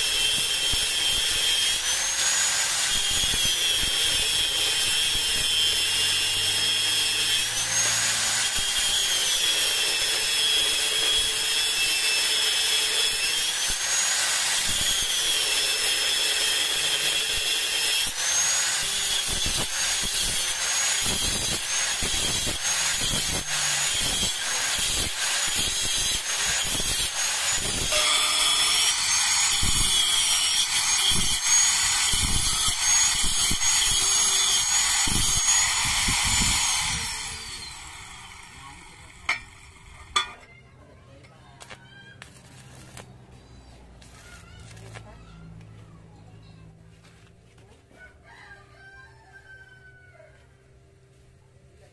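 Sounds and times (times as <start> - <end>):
angle grinder cutting steel pipe: 0.0 - 40.5.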